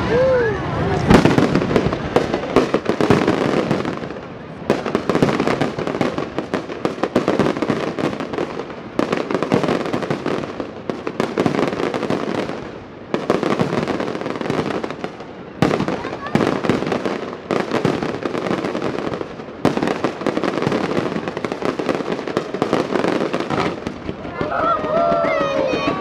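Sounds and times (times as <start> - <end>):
fireworks bursting and crackling: 0.0 - 26.0.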